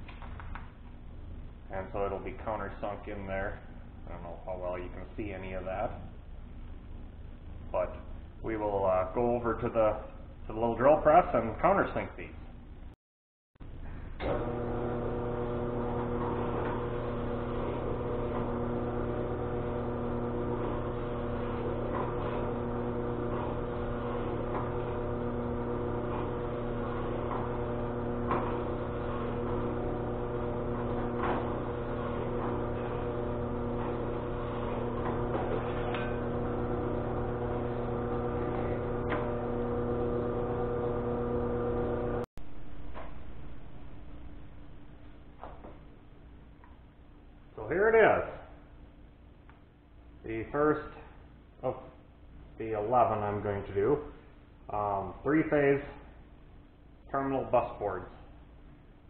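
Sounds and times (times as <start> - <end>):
drill press motor hum: 13.7 - 42.3.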